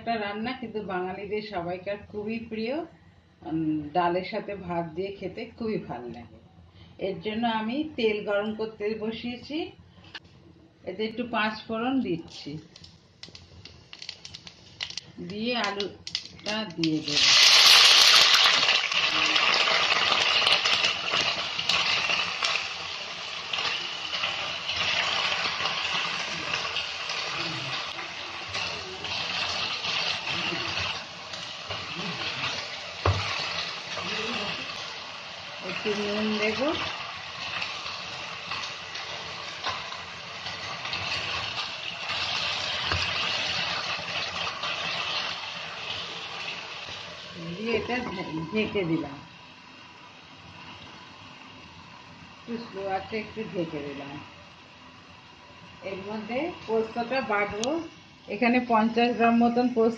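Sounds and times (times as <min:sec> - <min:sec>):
potatoes sizzling in hot oil: 0:11.6 - 0:59.9
oil popping and crackling: 0:12.3 - 0:47.4.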